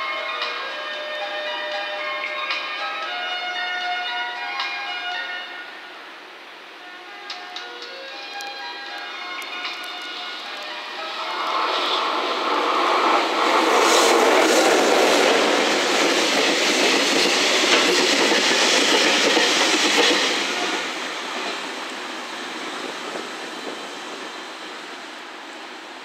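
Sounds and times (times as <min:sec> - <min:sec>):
freight train wheels clattering: 0:11.3 - 0:24.8.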